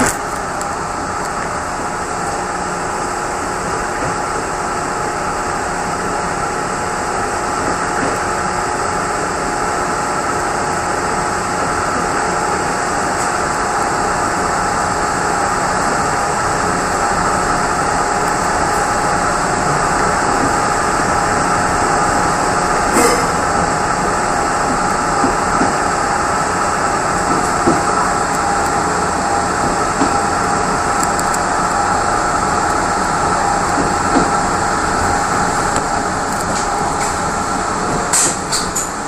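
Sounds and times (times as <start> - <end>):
train coach running noise: 0.0 - 39.0
sharp train clatter: 22.9 - 25.8, 37.9 - 39.0.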